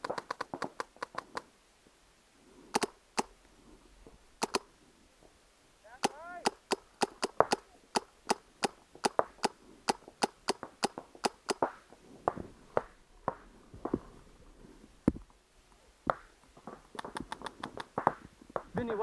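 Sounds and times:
paintball markers firing pops: 0.0 - 1.5, 6.0 - 13.4, 16.9 - 18.8.

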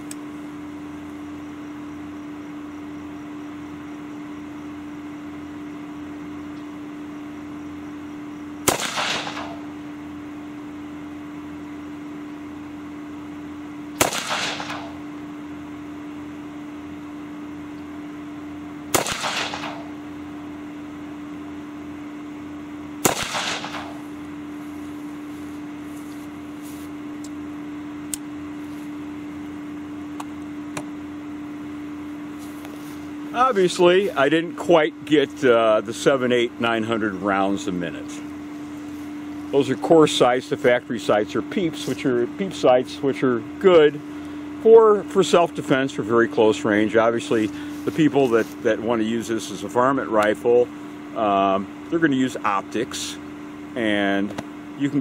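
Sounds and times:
rifle shots with echo: 8.6 - 9.7, 14.0 - 15.0, 18.9 - 19.9, 23.0 - 24.0.

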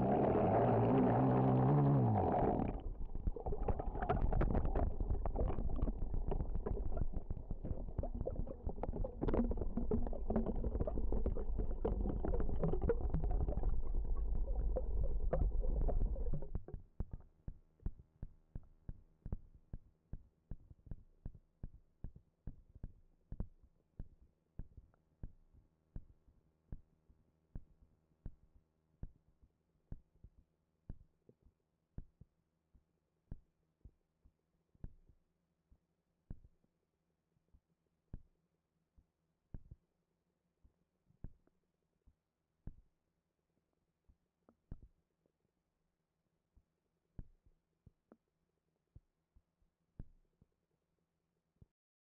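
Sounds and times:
muffled underwater gurgling: 0.0 - 16.7.

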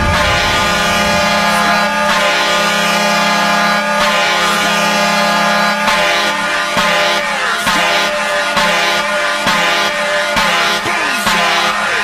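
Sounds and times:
falling pitch sweeps: 0.0 - 7.5
goal horn blowing: 0.0 - 12.0.

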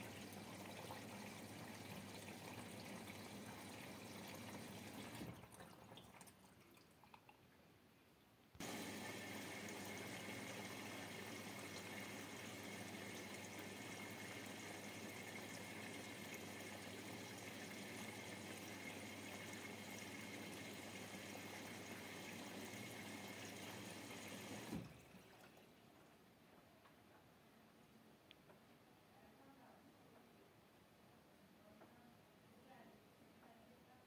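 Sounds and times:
washing machine filling with water: 0.0 - 7.1, 8.6 - 26.0.

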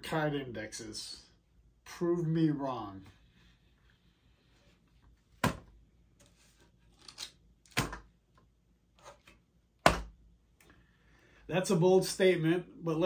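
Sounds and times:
cards tapping and rustling: 5.4 - 8.1.

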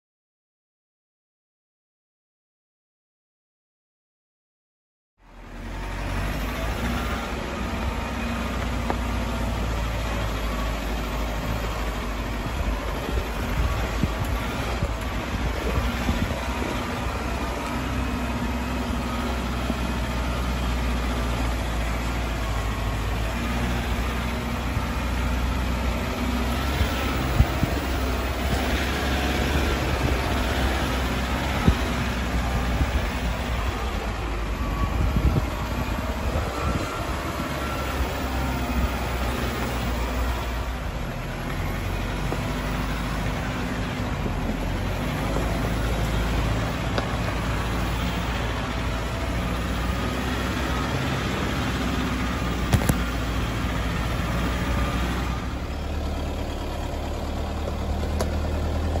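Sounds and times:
low engine hum: 5.2 - 59.0
tyres rumbling on dirt: 5.2 - 59.0.

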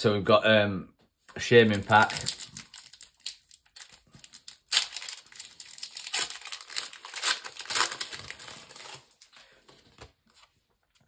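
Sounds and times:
foil wrapper crinkling and tearing: 1.7 - 9.3.

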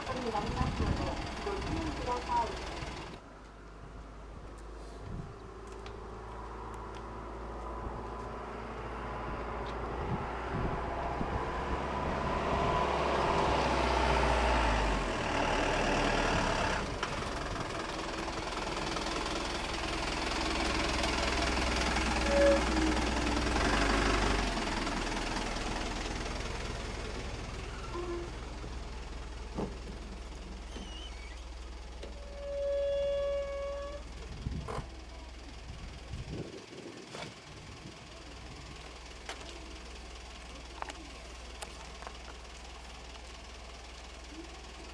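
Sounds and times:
diesel engine passing by: 0.0 - 3.5, 4.1 - 44.9
short pitched tone: 22.2 - 23.0.

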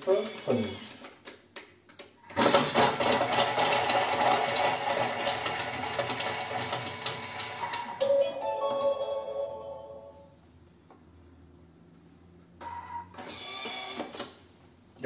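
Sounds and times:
food processor motor whirring: 2.3 - 8.0, 13.2 - 14.1.

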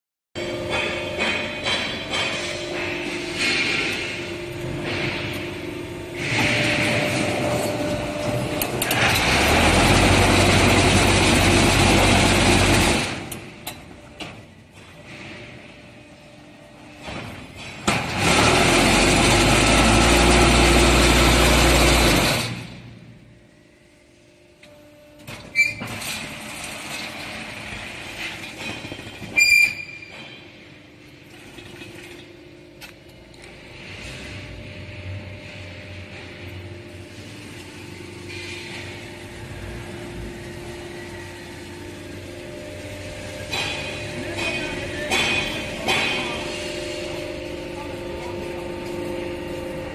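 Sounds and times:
metallic clanks: 0.4 - 5.6
machine low mechanical hum: 0.4 - 49.9
sharp metallic squeals: 29.2 - 30.5.

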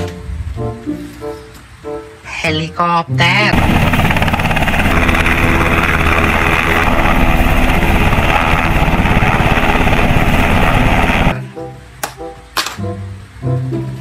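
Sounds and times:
helicopter rotor chopping: 3.5 - 11.4.

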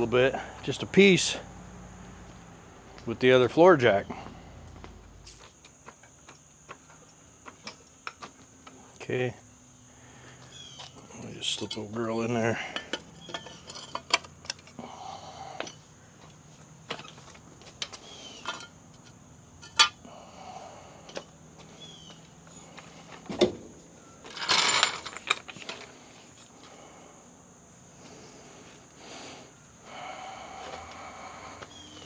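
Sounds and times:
metal tools clinking: 11.4 - 14.8, 17.8 - 20.0, 24.2 - 25.9.

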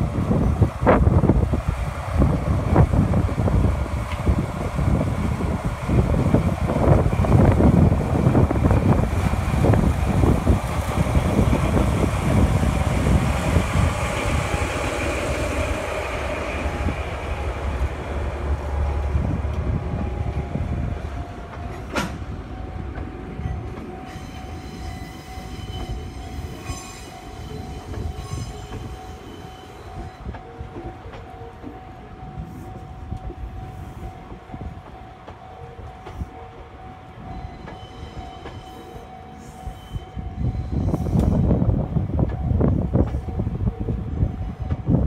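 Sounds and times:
diesel locomotive engine rumbling: 0.0 - 45.0
railcar wheels rolling: 0.0 - 45.0
faint steady squeal: 31.8 - 41.5.

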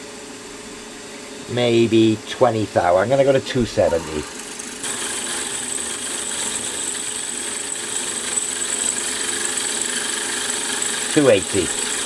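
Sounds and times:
milling machine spindle running: 3.9 - 12.0
drill cutting into metal: 4.0 - 12.0.

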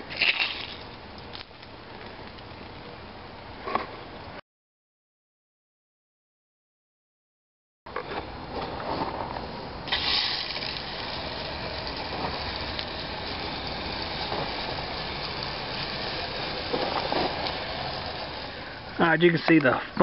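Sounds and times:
spray gun hissing: 9.9 - 19.0.

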